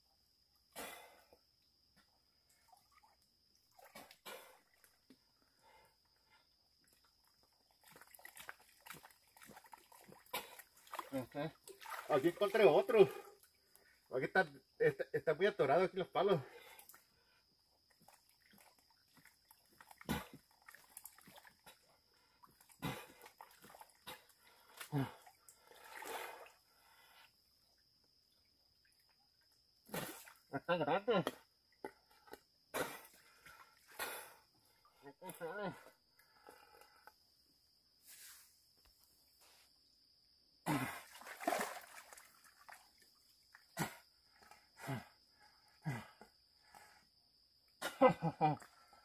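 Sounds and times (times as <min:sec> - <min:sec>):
water sloshing and dripping: 0:02.4 - 0:14.0, 0:16.6 - 0:27.8, 0:40.7 - 0:44.7.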